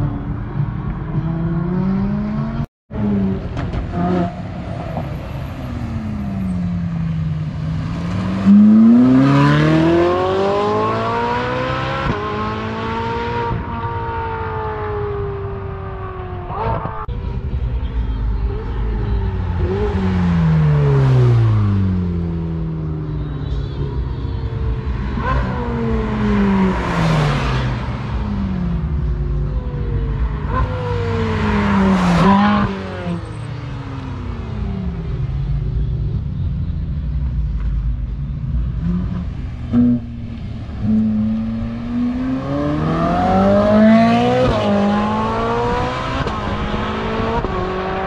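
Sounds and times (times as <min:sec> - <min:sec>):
sports car engine revving past: 0:07.1 - 0:14.6, 0:38.8 - 0:48.0.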